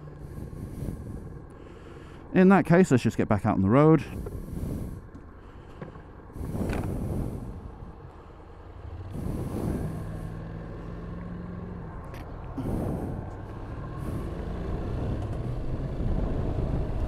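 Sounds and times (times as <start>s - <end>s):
low steady engine hum: 0.0s - 17.0s
vehicles rushing past: 6.4s - 17.0s.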